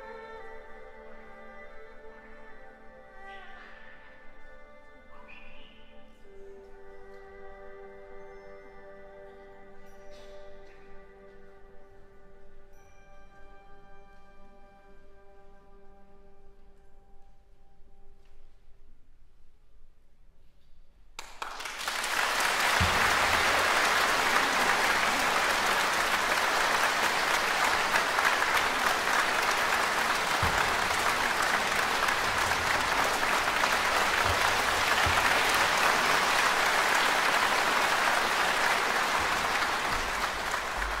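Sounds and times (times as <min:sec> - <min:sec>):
audience applauding: 0:21.2 - 0:41.0.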